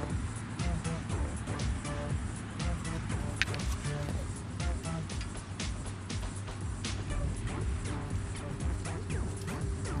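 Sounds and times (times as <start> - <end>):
background music with pulsing beat: 0.0 - 10.0.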